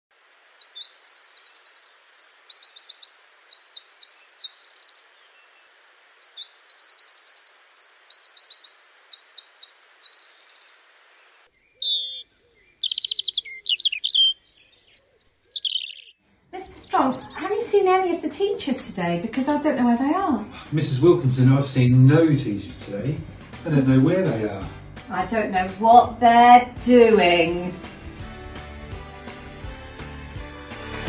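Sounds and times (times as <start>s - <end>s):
songbird trills and chirps: 0.1s - 10.9s, 11.5s - 18.5s
steady hiss: 9.6s - 11.6s.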